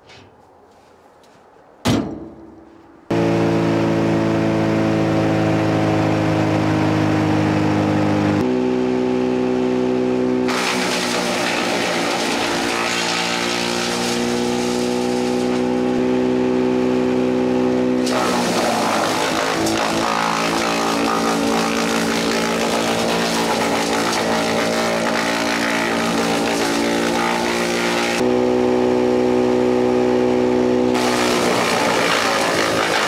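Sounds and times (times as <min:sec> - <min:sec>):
metal tray clang: 0:01.8 - 0:03.0
brush chipper running: 0:03.1 - 0:33.0
branches rushing through chipper: 0:10.4 - 0:16.0, 0:18.0 - 0:28.2, 0:30.9 - 0:33.0.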